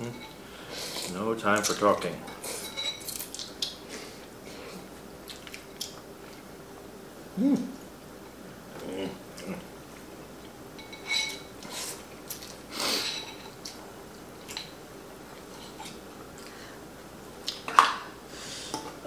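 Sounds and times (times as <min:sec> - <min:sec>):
utensils clinking on ceramic bowls: 0:01.6 - 0:03.3, 0:10.8 - 0:11.5, 0:13.0 - 0:13.6.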